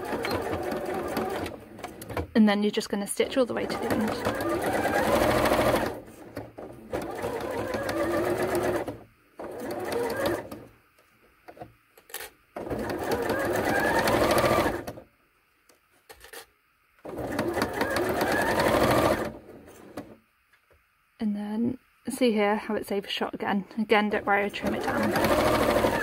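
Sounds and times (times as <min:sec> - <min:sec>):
sewing machine stitching: 0:00.0 - 0:02.4, 0:03.2 - 0:10.7, 0:12.6 - 0:15.0, 0:17.0 - 0:20.2, 0:24.0 - 0:26.0
sewing machine clicks: 0:24.6 - 0:26.0.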